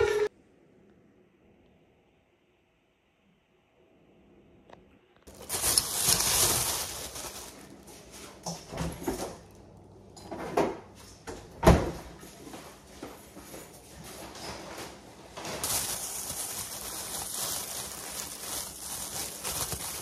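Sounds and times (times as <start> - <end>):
plastic bag rustling: 5.3 - 9.8, 13.9 - 20.0
knocks and bumps in a kitchen: 5.4 - 9.6, 10.2 - 16.0.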